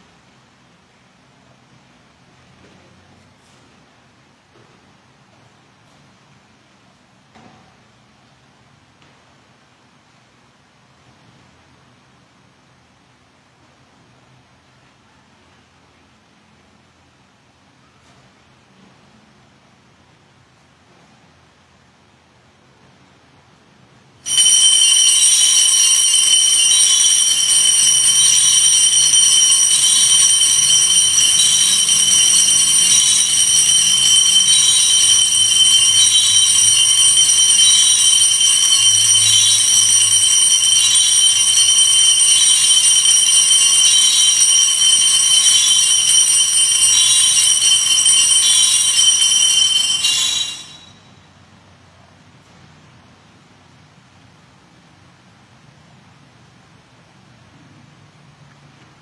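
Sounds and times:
altar bells jingling: 24.3s - 51.1s.

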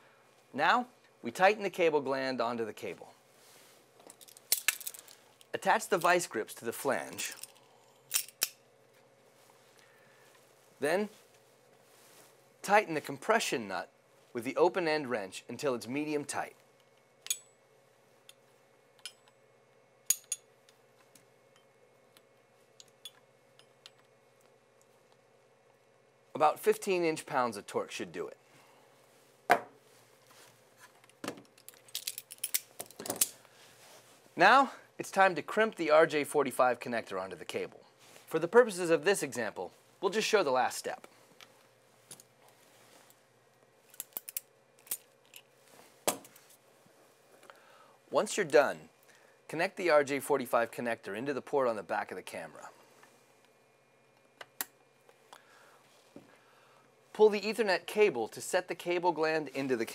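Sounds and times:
wrench and pliers clinking: 7.2s - 8.6s, 17.2s - 17.5s, 20.1s - 20.5s, 31.6s - 33.3s.

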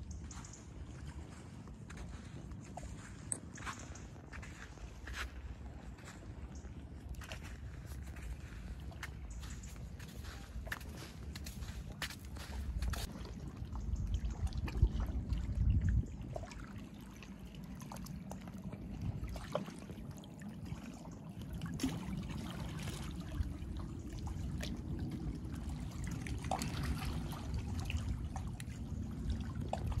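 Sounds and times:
low rumble: 0.0s - 16.8s, 21.6s - 30.0s
small waves lapping on rocks: 16.4s - 30.0s.

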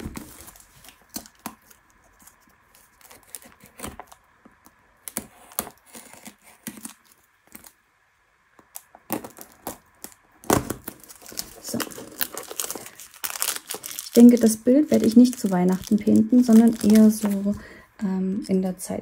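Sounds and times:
box and packing rustling: 0.0s - 4.2s, 10.6s - 17.7s.

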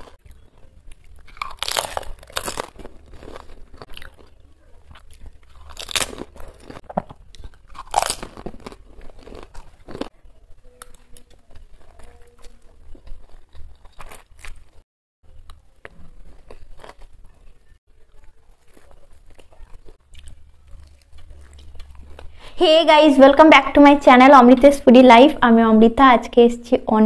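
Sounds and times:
crisp shells crunching in teeth: 0.0s - 14.8s
chewing: 0.0s - 22.5s.

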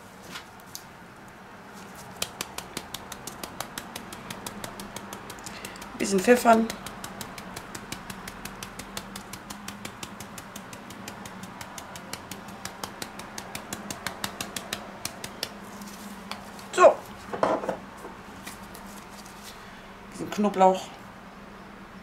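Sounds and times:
pepper mill clicking: 2.1s - 15.6s.

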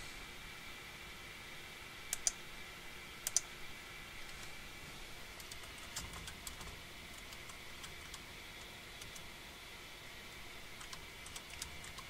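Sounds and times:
keyboard typing: 2.1s - 2.4s, 5.4s - 9.3s, 10.7s - 12.0s.

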